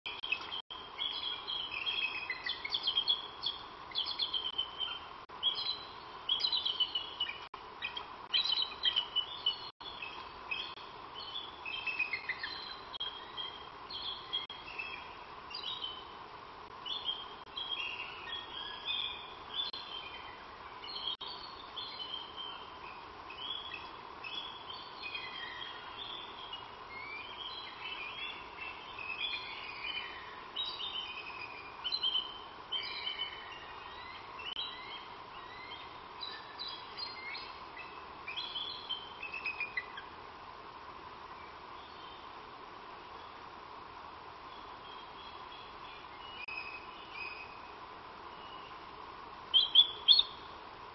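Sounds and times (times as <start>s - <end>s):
birds chirping and singing: 0.1s - 16.2s, 16.8s - 40.2s, 49.5s - 50.4s
faint steady hum: 0.1s - 50.9s.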